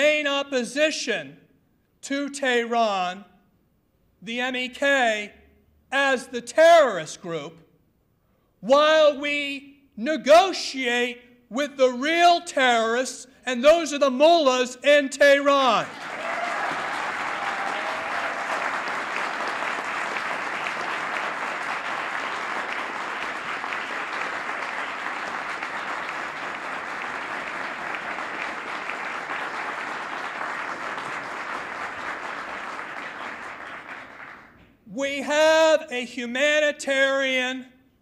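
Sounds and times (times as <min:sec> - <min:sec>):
audience applauding: 0:15.9 - 0:34.6.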